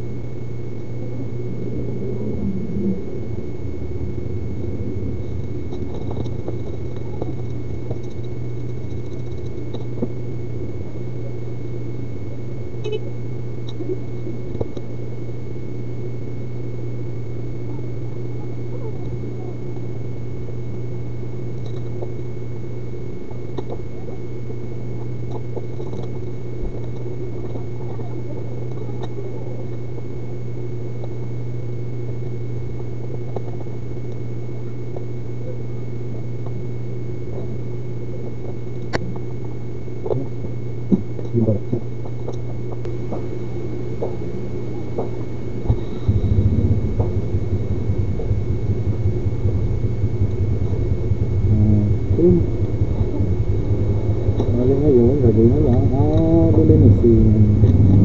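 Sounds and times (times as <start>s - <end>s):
thin high whines: 0.0s - 10.0s, 45.5s - 58.0s
steady low hum: 0.0s - 58.0s.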